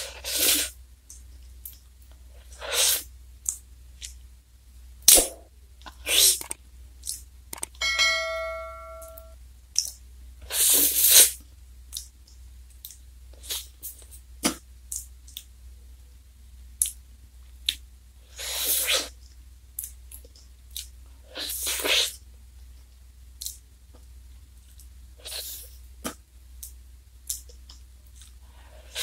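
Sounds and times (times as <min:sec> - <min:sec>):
wet eating clicks and smacks: 0:06.3 - 0:07.7, 0:11.9 - 0:13.6, 0:14.4 - 0:15.5, 0:16.8 - 0:17.0, 0:23.4 - 0:23.6
ringing tone: 0:07.8 - 0:09.4.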